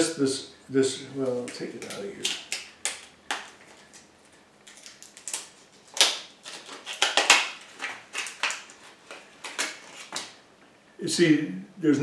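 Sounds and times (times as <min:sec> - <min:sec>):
packaging crinkling: 0:01.2 - 0:10.4.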